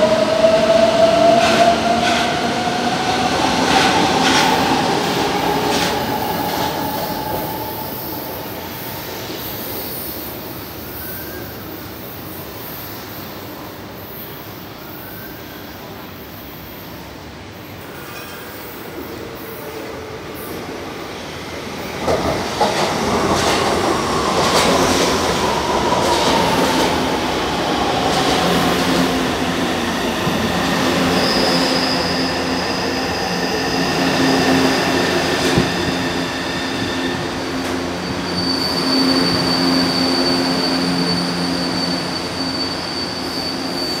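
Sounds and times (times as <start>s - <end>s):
electric train pulling in: 0.0s - 44.0s
high steady squeal: 25.0s - 44.0s.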